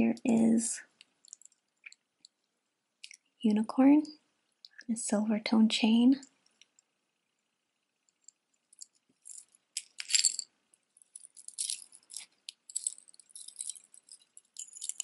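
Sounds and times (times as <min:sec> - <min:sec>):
metal chains jingling: 0:09.2 - 0:10.5, 0:11.1 - 0:15.0.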